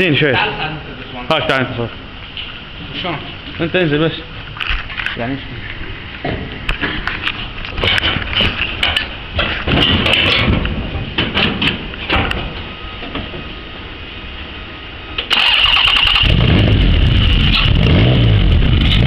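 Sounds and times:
engine clattering: 15.2s - 19.0s
car engine running loud: 15.6s - 19.0s.

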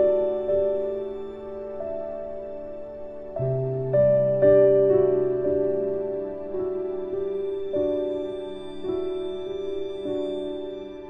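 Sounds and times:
slow sad music: 0.0s - 11.0s.

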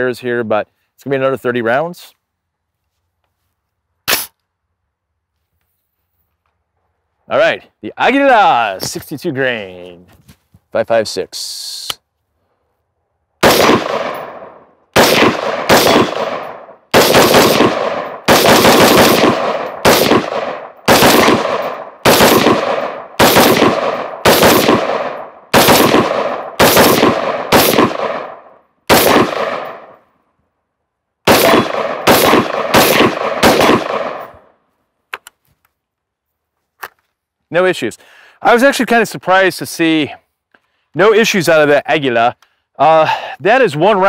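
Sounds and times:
rifle firing rapid shots: 13.4s - 30.0s, 31.3s - 34.4s.

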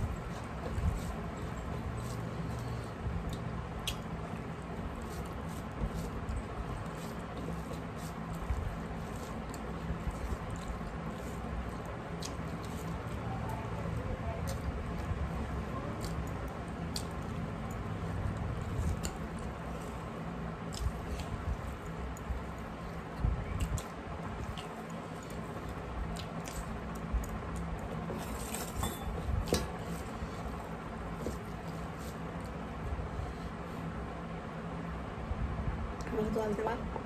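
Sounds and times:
chewing: 0.0s - 28.7s.

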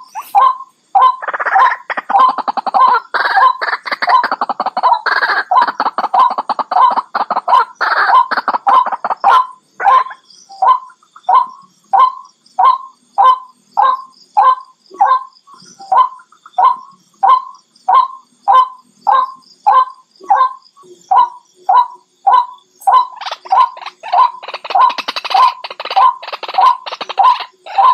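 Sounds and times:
waterhen calling: 22.3s - 27.9s.

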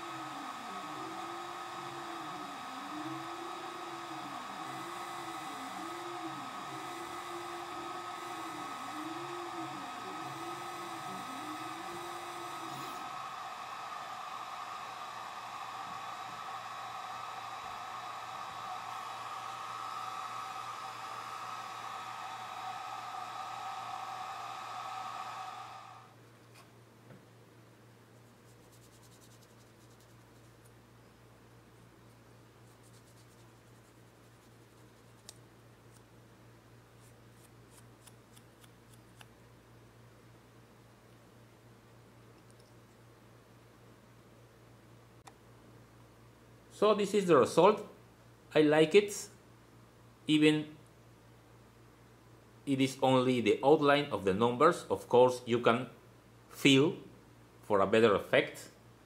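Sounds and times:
stepper motors whining: 0.0s - 26.1s
laser engraver whirring: 0.0s - 26.2s
cooling fan humming: 0.0s - 42.4s.

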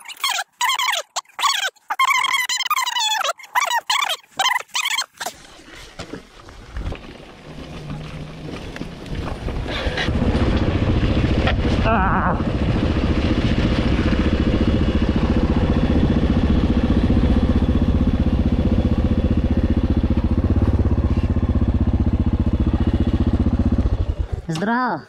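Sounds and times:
motorcycle engine running: 6.9s - 24.6s.

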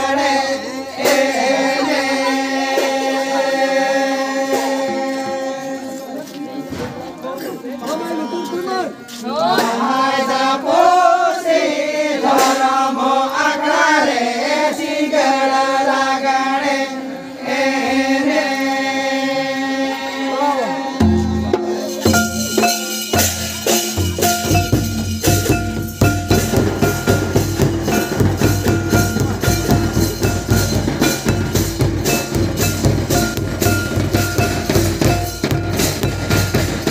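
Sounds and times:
barrel drum beating: 21.0s - 36.9s
kettle drum beating: 21.0s - 36.9s.

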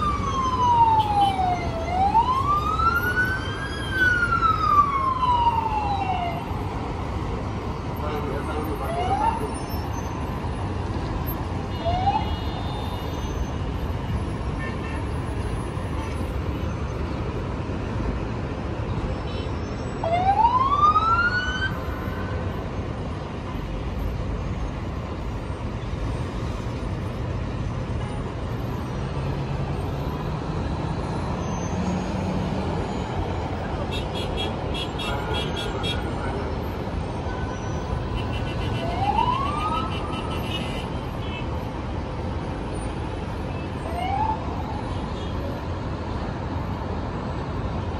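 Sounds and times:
siren whooping: 0.0s - 6.5s, 20.0s - 21.8s, 38.8s - 40.0s
traffic noise: 0.0s - 47.9s.

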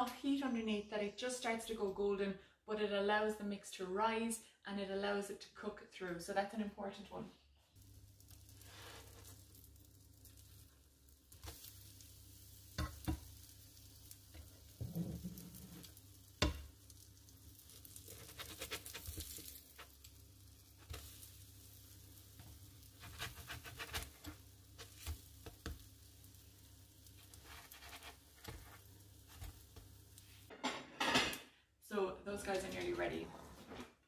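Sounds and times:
pancakes sizzling in butter: 7.6s - 30.5s
spatula tapping and scraping pan: 12.7s - 13.4s, 14.2s - 16.8s, 17.8s - 20.0s, 22.4s - 25.9s, 27.1s - 29.9s.

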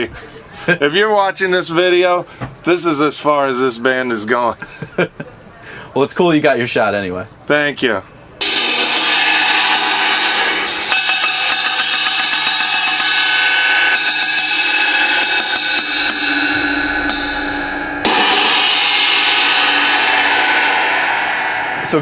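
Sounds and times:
crash cymbal struck with drumstick: 8.4s - 22.0s.

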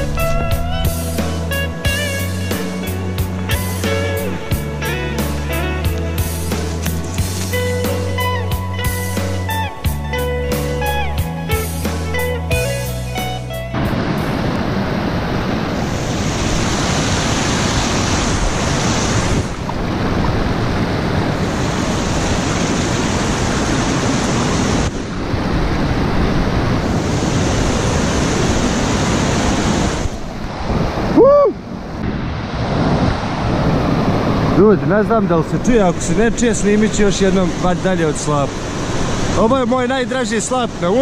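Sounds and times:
river rushing over waterfall: 13.2s - 41.0s.

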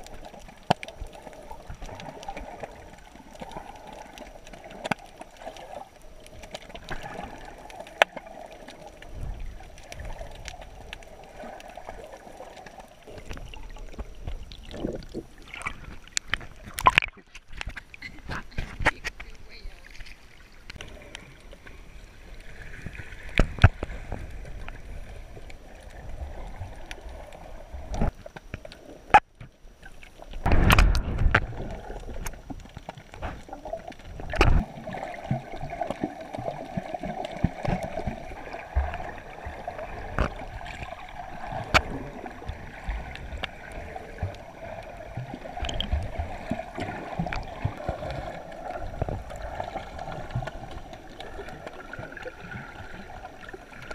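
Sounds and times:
underwater gurgling and rushing: 0.0s - 53.9s
sharp underwater clicks and knocks: 3.3s - 5.4s, 12.6s - 21.2s, 23.2s - 24.8s, 27.9s - 34.8s, 40.0s - 44.4s, 45.6s - 48.1s, 48.7s - 49.4s.

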